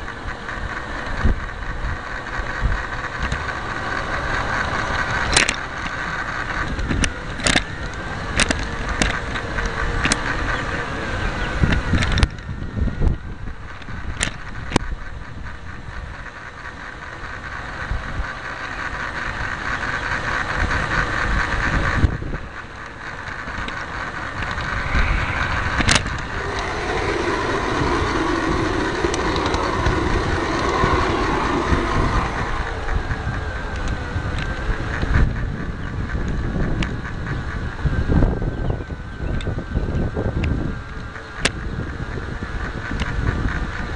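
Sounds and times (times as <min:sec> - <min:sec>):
model train motor humming: 0:00.0 - 0:43.9
wheels clicking over rail joints: 0:00.0 - 0:43.9.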